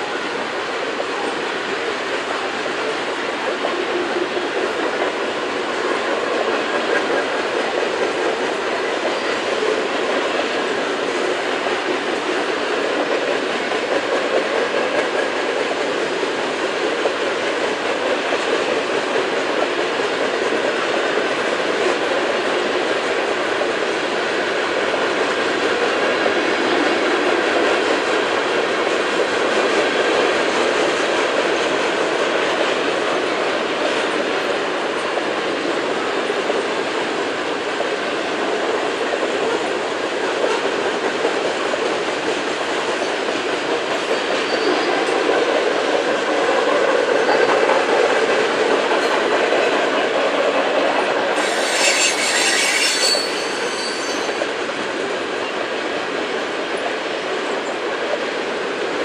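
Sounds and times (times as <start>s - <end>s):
freight train wheels rumbling: 0.0s - 59.0s
high-pitched wheel squeal: 51.4s - 54.5s.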